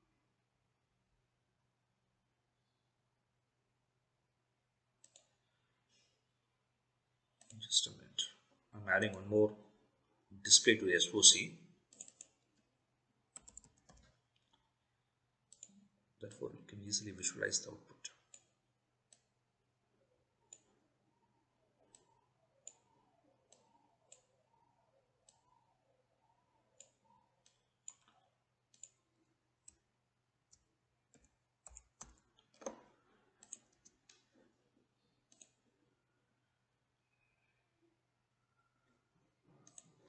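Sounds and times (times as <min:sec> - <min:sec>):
mouse and keyboard clicks: 0:31.1 - 0:34.2.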